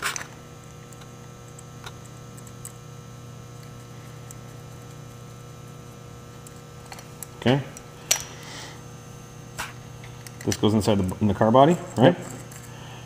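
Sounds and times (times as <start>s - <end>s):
steady low hum: 0.0s - 13.0s
faint clicks of metal parts: 9.6s - 12.7s.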